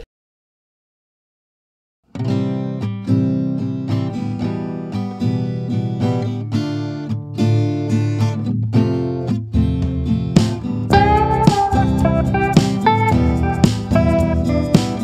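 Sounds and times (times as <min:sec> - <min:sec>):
acoustic guitar strumming: 0:02.1 - 0:15.0.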